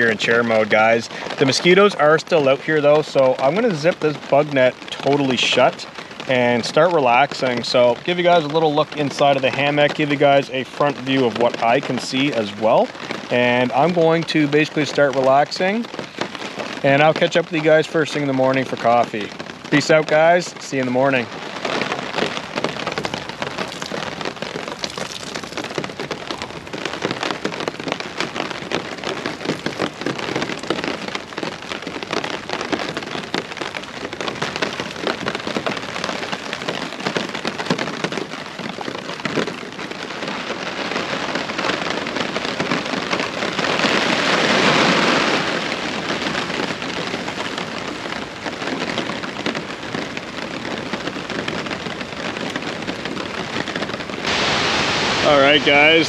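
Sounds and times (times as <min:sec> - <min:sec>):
rain pattering on tarp: 0:00.0 - 0:56.0
rush of noise: 0:54.2 - 0:56.0.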